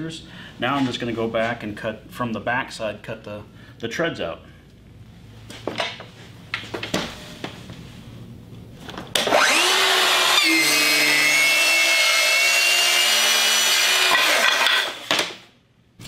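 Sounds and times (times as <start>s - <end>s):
circular saw cutting wood: 9.2s - 15.2s.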